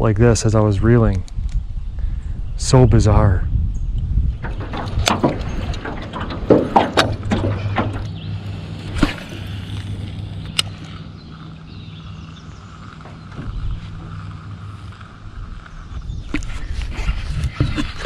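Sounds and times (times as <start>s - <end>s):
reel humming whir: 3.8s - 18.0s.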